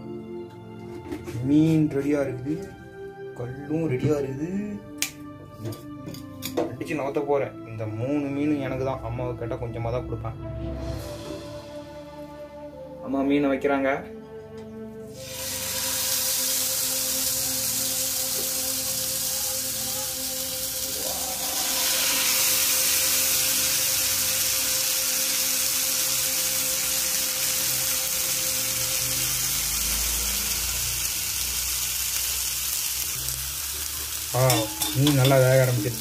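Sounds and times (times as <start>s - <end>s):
fish sizzling in oil: 15.2s - 36.0s.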